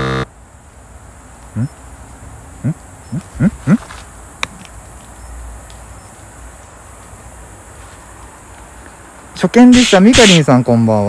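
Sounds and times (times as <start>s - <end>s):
faint outdoor background noise: 0.0s - 11.0s.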